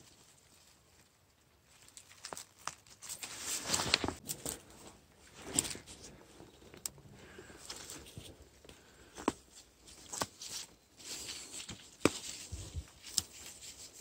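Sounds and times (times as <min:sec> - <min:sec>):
leaves and twigs rustling: 0:00.0 - 0:14.0
twigs snapping: 0:01.7 - 0:04.7, 0:06.8 - 0:13.8.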